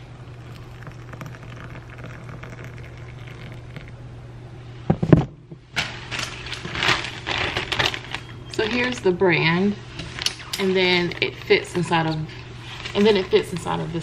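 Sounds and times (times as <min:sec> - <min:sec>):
water pouring into teacup: 0:00.3 - 0:03.9
plastic bag crinkling: 0:06.6 - 0:09.0.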